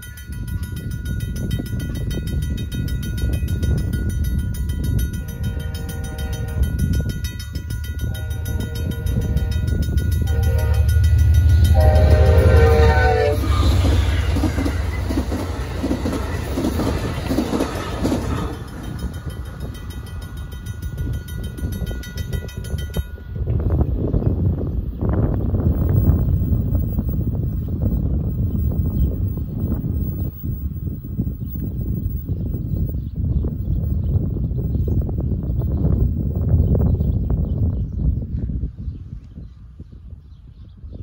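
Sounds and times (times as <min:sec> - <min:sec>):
crossing bell clanging: 0:00.0 - 0:24.0
train rumbling past: 0:00.0 - 0:38.4
train horn: 0:05.2 - 0:07.2, 0:08.0 - 0:17.0, 0:17.6 - 0:18.6.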